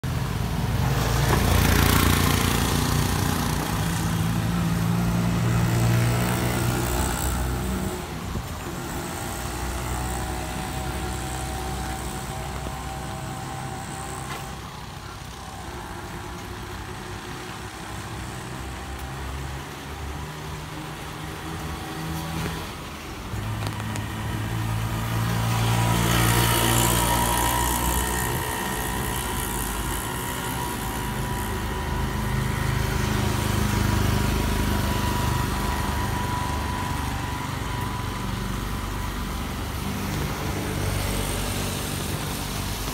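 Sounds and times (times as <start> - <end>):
traffic hum: 0.0 - 42.9
tyres hissing on wet road: 0.1 - 42.9.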